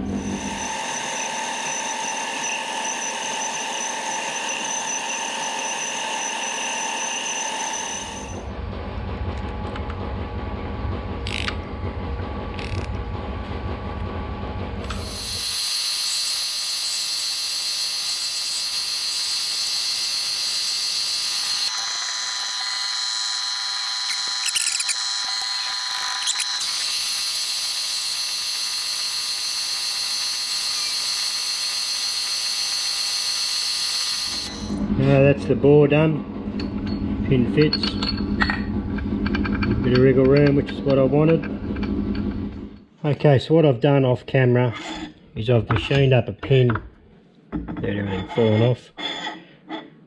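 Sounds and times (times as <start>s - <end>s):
milling machine cutting metal: 0.0s - 8.5s, 14.8s - 35.2s.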